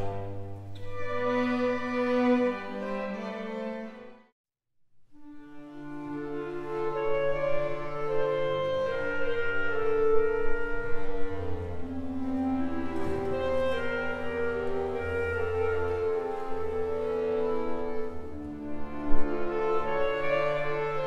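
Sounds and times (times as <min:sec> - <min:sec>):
accordion ensemble playing chords: 0:05.8 - 0:21.0.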